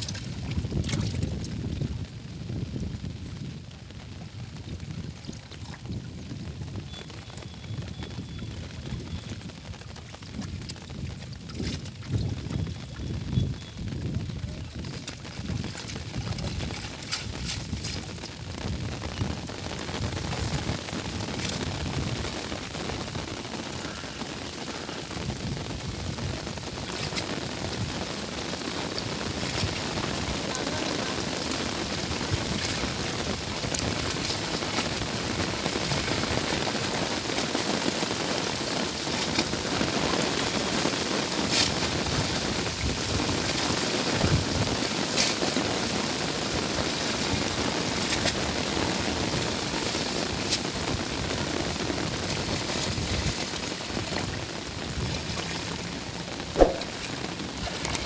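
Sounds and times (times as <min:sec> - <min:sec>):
water splashing from wading: 0:55.1 - 0:58.0.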